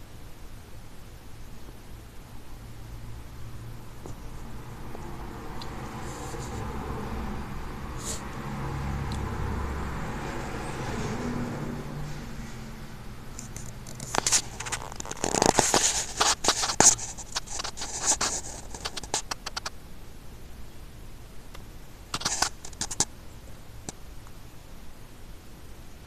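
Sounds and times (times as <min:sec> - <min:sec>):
phone handling scratching: 0:13.4 - 0:19.7, 0:22.1 - 0:23.1.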